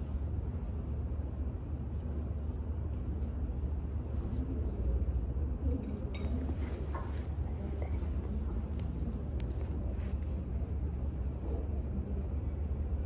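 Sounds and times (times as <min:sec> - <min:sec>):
low room rumble: 0:00.0 - 0:13.0
faint distant voices: 0:04.0 - 0:13.0.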